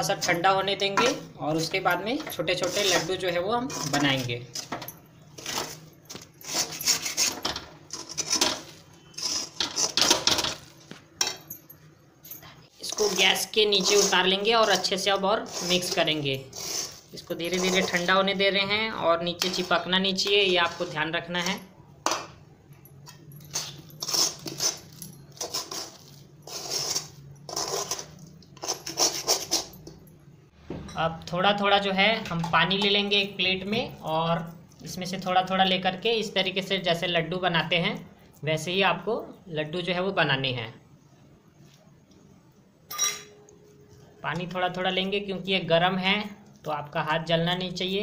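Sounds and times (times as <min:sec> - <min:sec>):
spatula scraping steel pan: 0:02.2 - 0:04.8, 0:06.4 - 0:10.3, 0:12.8 - 0:18.2, 0:25.4 - 0:29.7.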